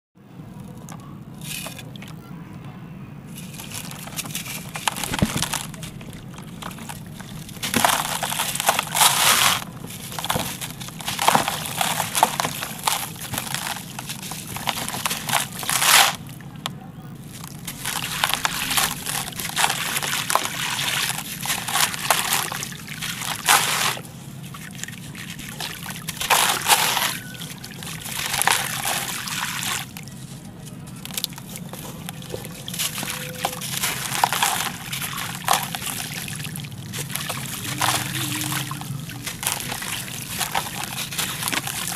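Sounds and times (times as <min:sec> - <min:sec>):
grit splashing into water: 0:03.4 - 0:16.4, 0:17.3 - 0:30.0, 0:31.0 - 0:41.9
grainy scraping of concrete: 0:36.9 - 0:41.9.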